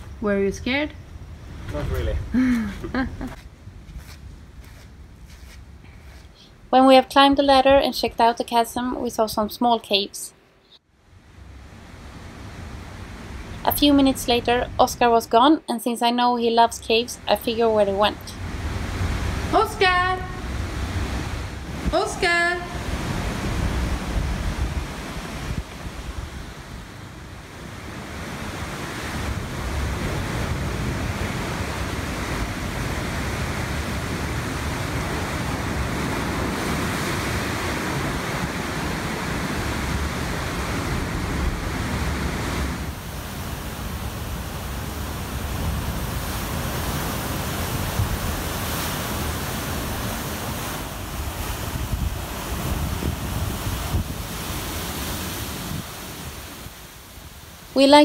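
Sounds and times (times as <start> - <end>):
wind buffeting microphone: 16.8 - 57.6
surf crashing over rocks: 17.6 - 58.0.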